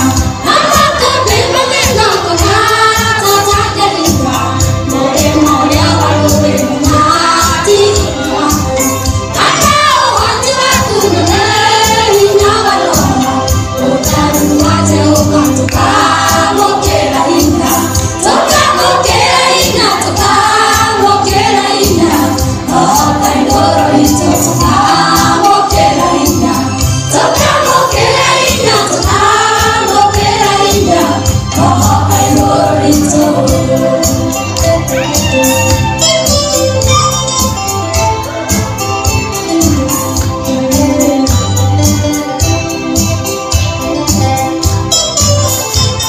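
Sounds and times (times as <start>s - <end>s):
choir singing gospel music: 0.0s - 44.9s.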